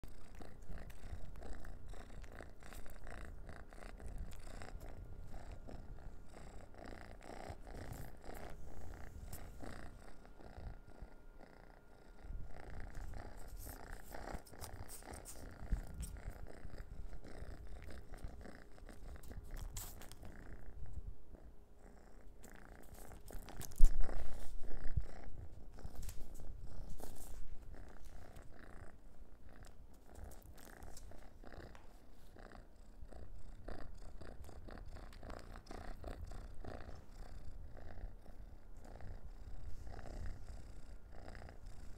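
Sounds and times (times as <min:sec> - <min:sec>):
cat purring: 0:00.0 - 0:41.9.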